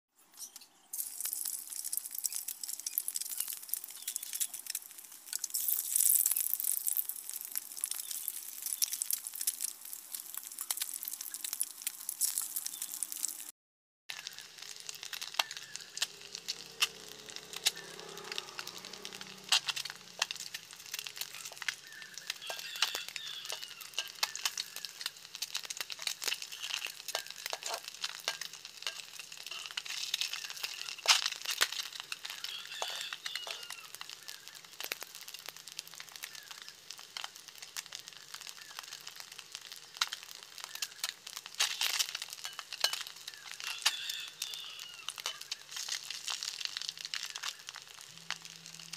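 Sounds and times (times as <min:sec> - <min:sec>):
eggs sizzling in hot oil: 0:00.4 - 0:13.5, 0:14.1 - 0:48.9.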